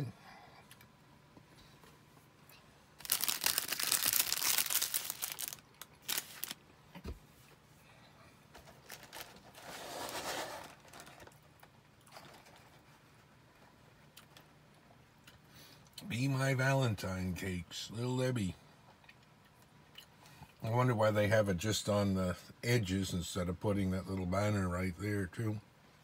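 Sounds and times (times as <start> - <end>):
plastic wrappers crinkling: 3.0 - 6.6, 8.6 - 12.6.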